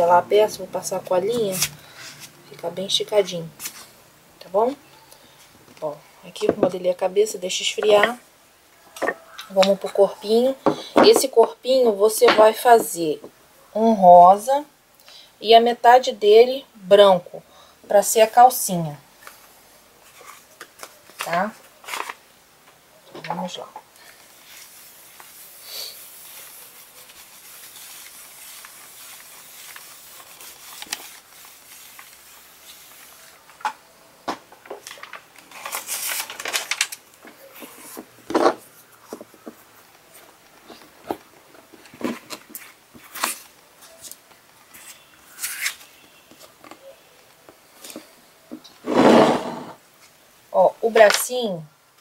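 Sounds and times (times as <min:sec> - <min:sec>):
hands rubbing foam: 0:24.2 - 0:33.5
iron sliding over paper: 0:48.8 - 0:49.8.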